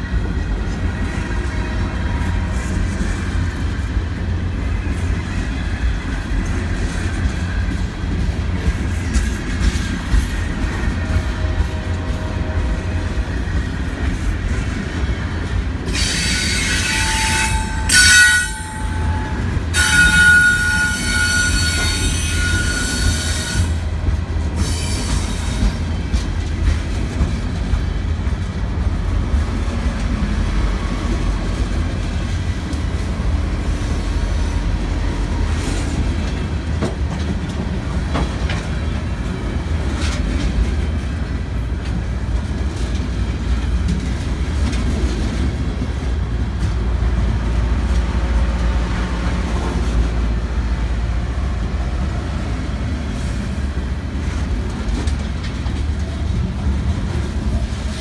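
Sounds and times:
train wheels rumbling on rail: 0.0s - 58.0s
high-pitched wheel squeal: 16.0s - 23.8s.

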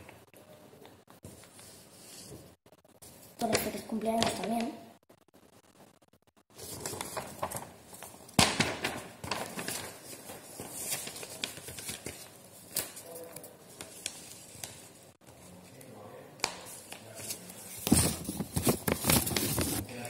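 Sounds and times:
paper rustling and crinkling: 6.5s - 15.6s, 16.4s - 20.0s.

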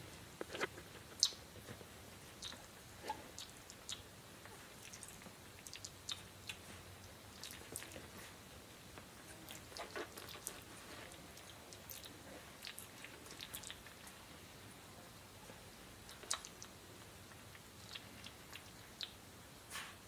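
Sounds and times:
puppies mouth-smacking and clicking: 16.1s - 16.8s.

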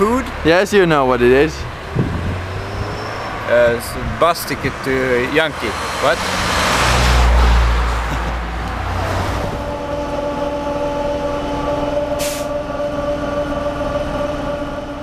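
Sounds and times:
bus mechanical whine: 0.0s - 15.0s
passing road vehicle: 0.0s - 15.0s
air hiss: 12.2s - 12.5s.

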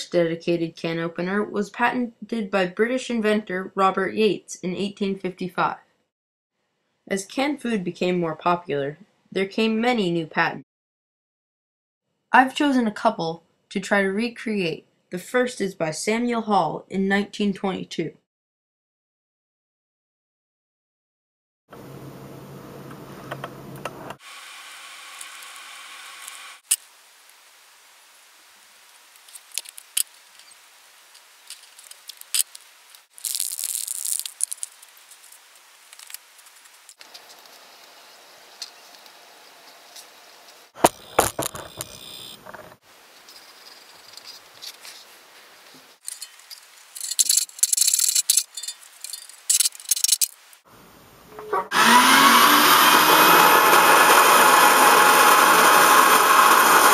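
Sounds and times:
rustling or scraping: 28.9s - 50.5s
small metal clinks and rattles: 46.0s - 50.4s
loud rough noise: 51.4s - 56.9s.

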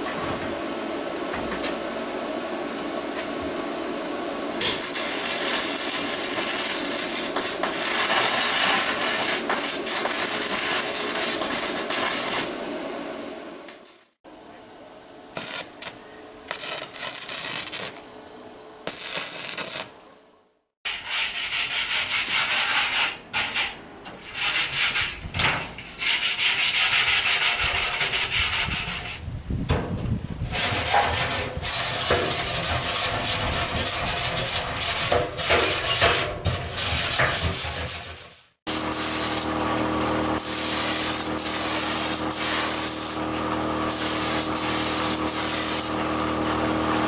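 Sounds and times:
harsh rasping on metal drums: 30.5s - 38.5s.

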